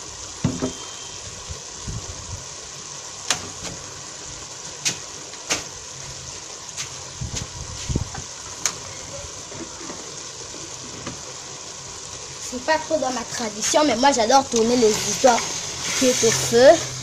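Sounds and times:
pot simmering with hiss: 0.0s - 17.0s
sharp pops: 4.8s - 5.8s.

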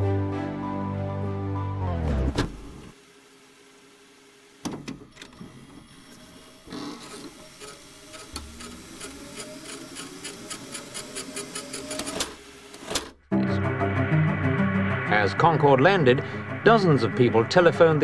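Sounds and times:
tape fast-forward whir with ticking: 3.9s - 13.1s.

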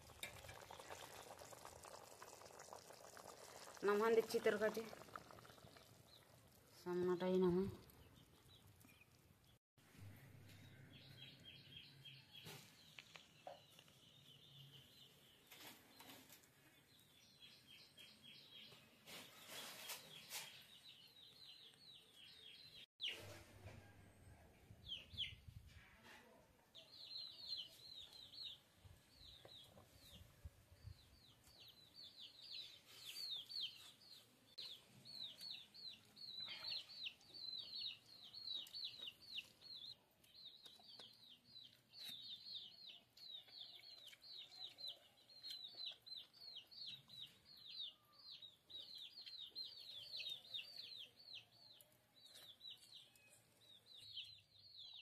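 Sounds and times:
birds chirping: 26.9s - 55.0s.

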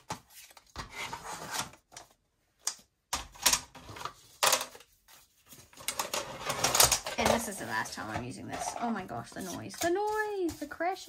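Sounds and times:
plastic craft tools clattering: 2.7s - 4.9s, 5.7s - 10.6s.

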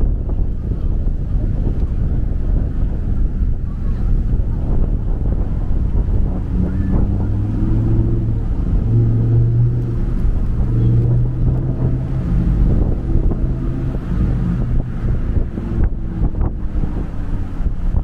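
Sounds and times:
vehicle engine humming: 0.0s - 18.0s
wind rumble on microphone: 0.0s - 18.0s.

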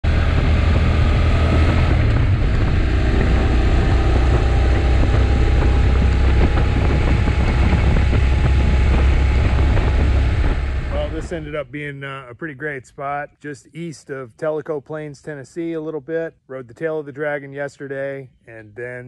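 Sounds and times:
motorcycle engine cruising: 0.0s - 11.6s
wind noise on microphone: 0.0s - 11.7s.

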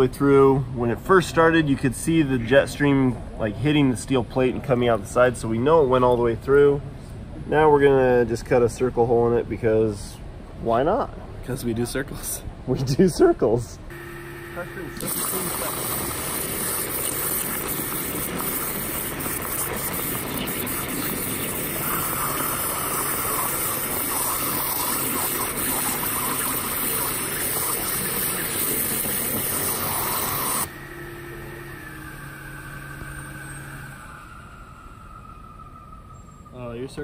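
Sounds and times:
machine hum: 13.8s - 37.0s
waterjet hissing in water: 13.9s - 37.0s.

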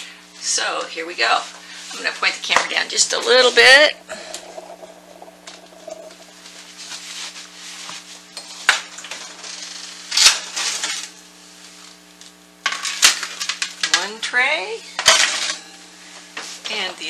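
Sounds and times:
low hum: 2.4s - 7.8s.

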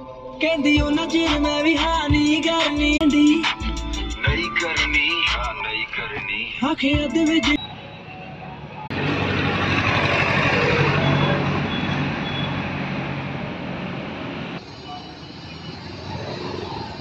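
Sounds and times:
vehicle engine drone: 7.6s - 17.0s
loud road rushing noise: 7.8s - 17.0s.

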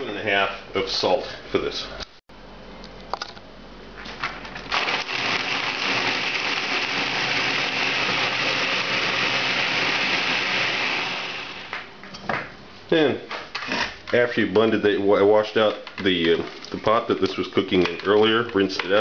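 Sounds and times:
blender running: 4.7s - 11.9s.

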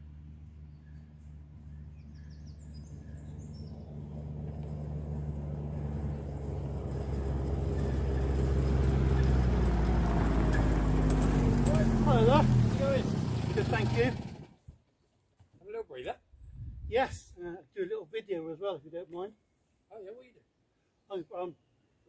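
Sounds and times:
utility vehicle engine on gravel: 0.0s - 14.6s.

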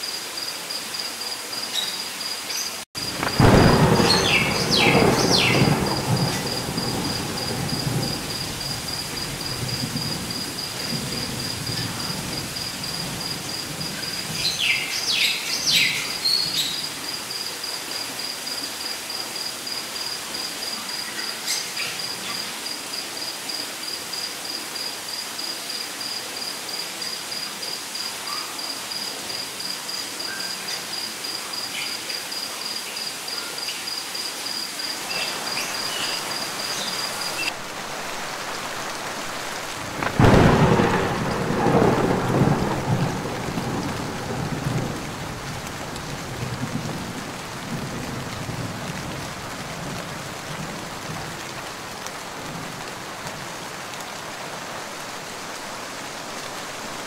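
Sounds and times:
cricket chirping: 0.0s - 57.0s
light rain: 0.0s - 57.0s
low thunder rumble: 3.0s - 14.6s, 39.7s - 51.7s.

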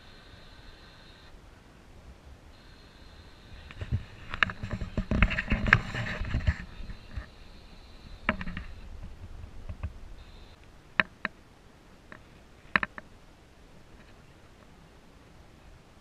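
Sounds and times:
faint steady background noise: 0.0s - 16.0s
yacht rigging clicks and knocks: 3.7s - 7.3s, 12.1s - 13.1s.

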